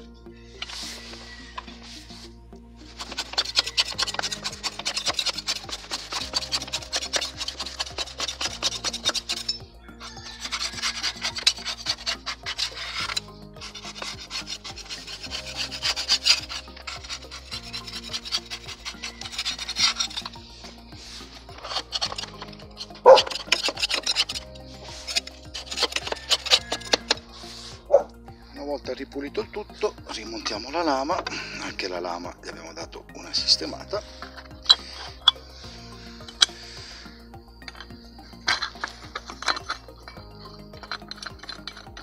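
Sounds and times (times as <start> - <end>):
sponge scrubbing metal: 0.6 - 2.3, 2.9 - 28.1.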